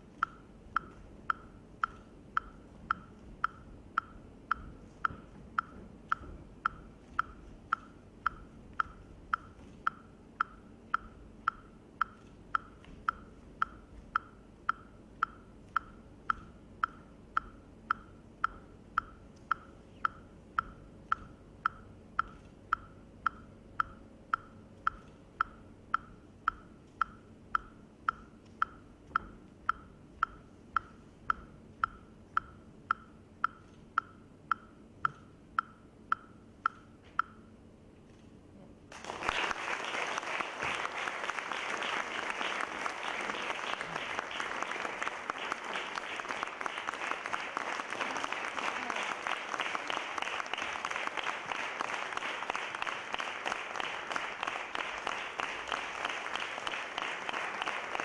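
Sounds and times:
faint room noise: 0:00.0 - 0:58.0
metronome clicking: 0:00.2 - 0:37.6.

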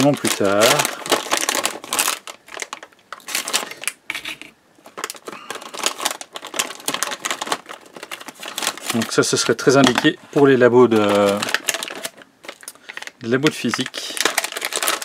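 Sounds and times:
plastic packaging crinkling: 0:00.0 - 0:04.0, 0:04.8 - 0:15.0.

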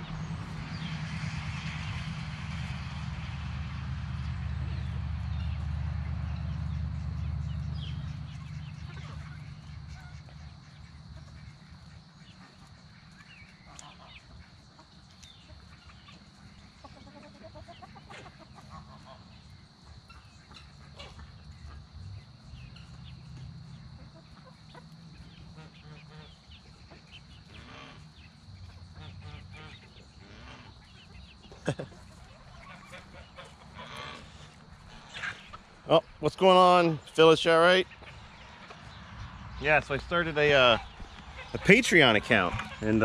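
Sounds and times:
low background rumble: 0:00.0 - 0:14.6
chickens clucking quietly: 0:06.6 - 0:43.0.

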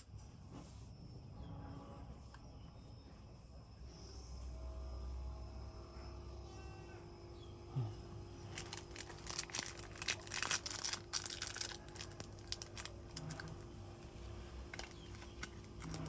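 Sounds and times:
faint steady hum: 0:00.0 - 0:16.0
packaging crinkling: 0:08.5 - 0:13.7, 0:14.6 - 0:16.0.

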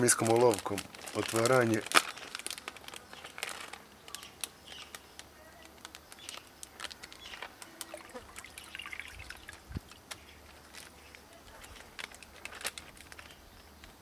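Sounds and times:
plastic bag crinkling: 0:00.0 - 0:13.5
water pouring into a tub: 0:07.8 - 0:09.7.

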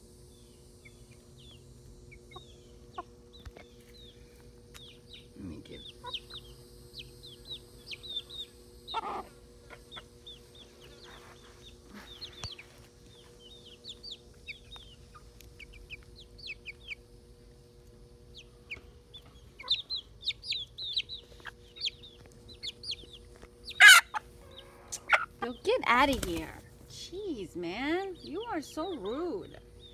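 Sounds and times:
chickens clucking and chirping: 0:00.0 - 0:29.9
chicken squawk: 0:07.9 - 0:10.1, 0:23.6 - 0:25.4.

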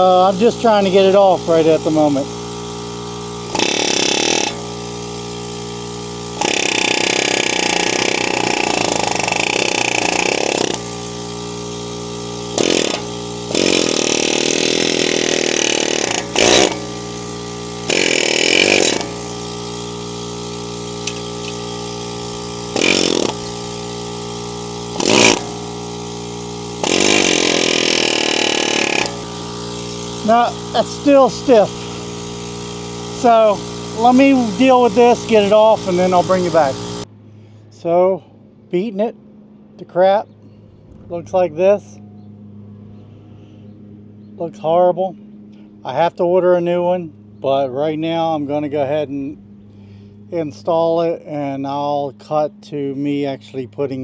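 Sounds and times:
air hammer chattering on metal: 0:03.5 - 0:04.7, 0:06.3 - 0:11.0, 0:12.4 - 0:17.1, 0:17.8 - 0:36.9.

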